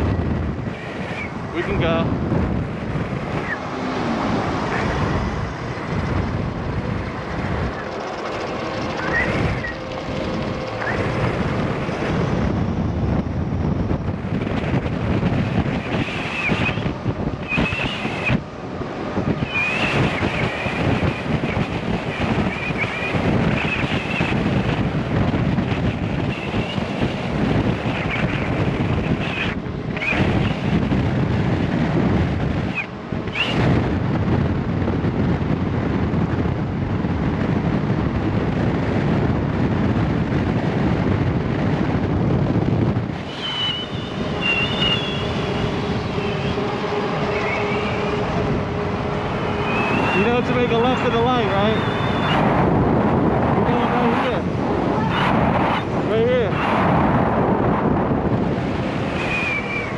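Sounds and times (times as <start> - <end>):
wind rushing over microphone: 0.0 - 59.9
faint high wavering whistles: 8.4 - 9.9, 16.1 - 16.8, 17.4 - 18.4, 19.4 - 20.7, 43.2 - 48.2, 49.5 - 50.6, 51.6 - 52.4, 59.2 - 59.9.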